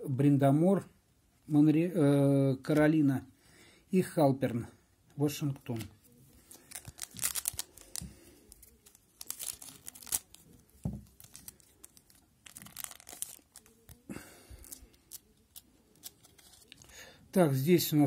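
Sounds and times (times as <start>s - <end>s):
foil wrapper tearing and crinkling: 6.4s - 17.0s.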